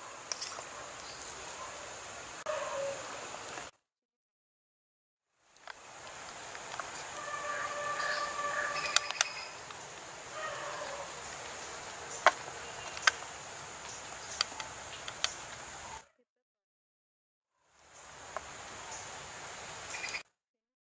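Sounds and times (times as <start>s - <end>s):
animal call: 0.0s - 3.3s, 6.8s - 13.1s
steady outdoor hiss: 0.0s - 3.7s, 5.3s - 16.1s, 17.6s - 20.2s.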